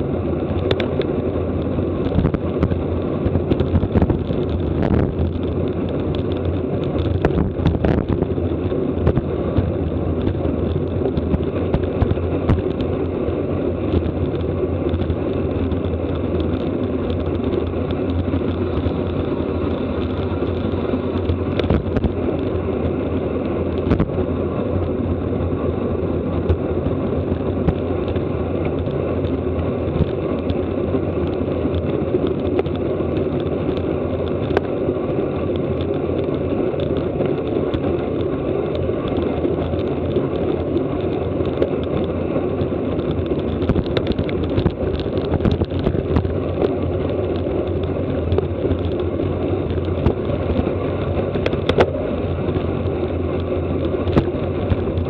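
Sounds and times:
bicycle road noise: 0:00.0 - 0:55.0
wind rushing over microphone: 0:00.0 - 0:55.0.

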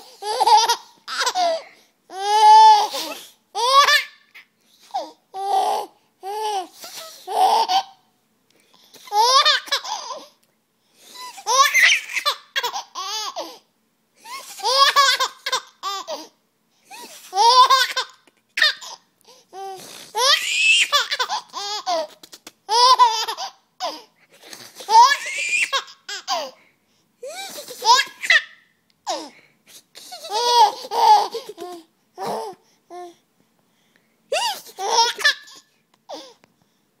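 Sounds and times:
baby laughing: 0:00.0 - 0:08.0, 0:09.0 - 0:10.3, 0:11.2 - 0:13.5, 0:14.2 - 0:16.3, 0:16.9 - 0:19.0, 0:19.6 - 0:26.6, 0:27.2 - 0:29.3, 0:30.1 - 0:32.6, 0:34.3 - 0:36.2.

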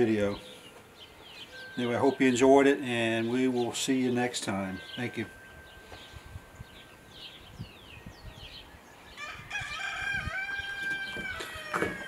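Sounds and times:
bird chirps: 0:00.0 - 0:09.3
rooster crowing: 0:09.2 - 0:12.0.

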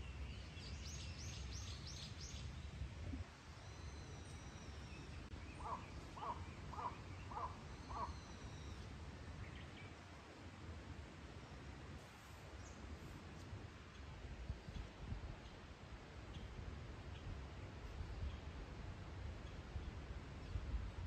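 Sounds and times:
bird calling: 0:05.5 - 0:08.8.

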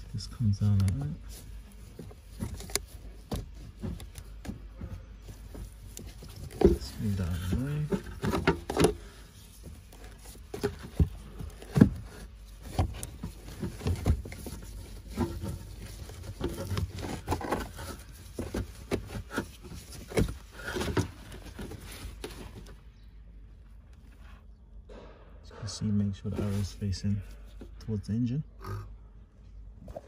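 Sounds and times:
plastic clicks and scraping: 0:00.7 - 0:22.8.

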